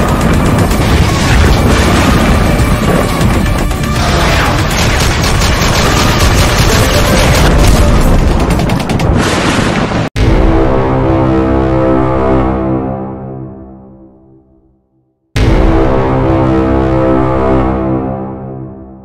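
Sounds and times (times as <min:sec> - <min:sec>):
loud music: 0:00.0 - 0:08.8
machine-gun fire: 0:00.0 - 0:10.1
heavy booms: 0:00.1 - 0:10.9.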